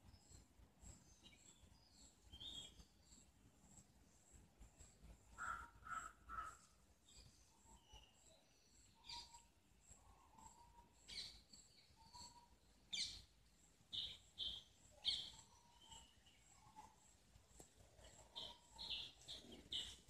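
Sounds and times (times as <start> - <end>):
birds chirping: 10.2 - 17.2, 17.9 - 20.0.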